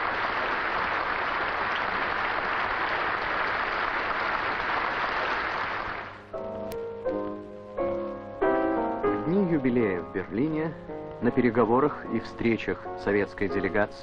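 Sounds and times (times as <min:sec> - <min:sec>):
audience applause: 0:00.0 - 0:06.2
piano music: 0:06.2 - 0:14.0.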